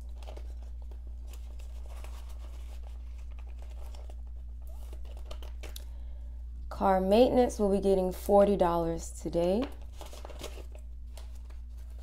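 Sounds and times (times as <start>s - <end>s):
paper rustling and crinkling: 0.0s - 5.8s, 9.6s - 12.0s.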